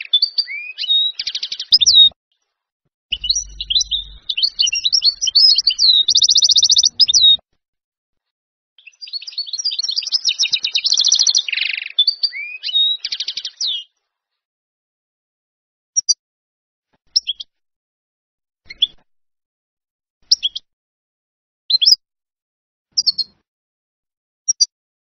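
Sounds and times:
goldfinch singing: 0:00.0 - 0:02.1, 0:03.1 - 0:07.4, 0:08.8 - 0:13.8.

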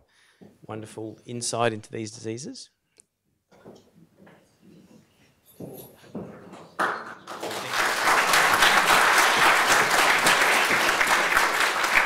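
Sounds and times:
audience applause: 0:06.8 - 0:12.0.

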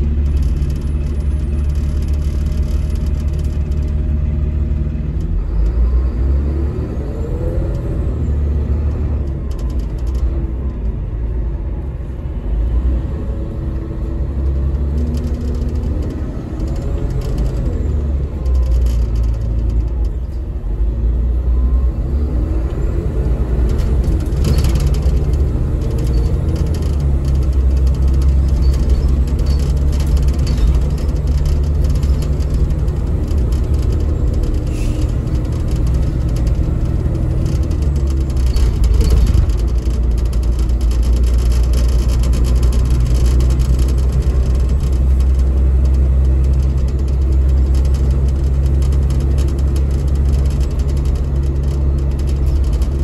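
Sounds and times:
bus diesel engine rumble: 0:00.0 - 0:53.0.

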